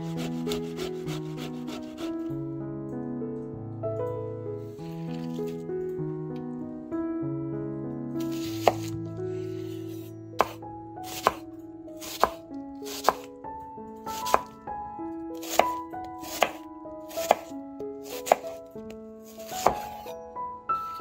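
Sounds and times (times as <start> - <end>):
soft background music: 0.0 - 21.0
knife striking cutting board: 8.3 - 8.9, 10.4 - 11.4, 12.0 - 13.3, 14.2 - 14.5, 15.4 - 18.6, 19.3 - 20.1.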